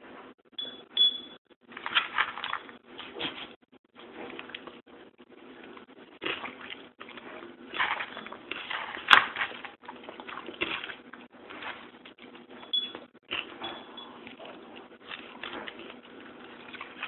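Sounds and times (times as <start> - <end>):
cat chewing food: 13.3 - 17.0.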